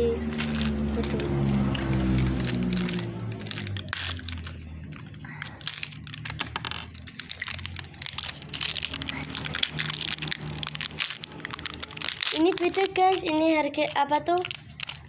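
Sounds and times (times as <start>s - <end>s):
plastic packaging clicks and crinkles: 0.2s - 15.0s.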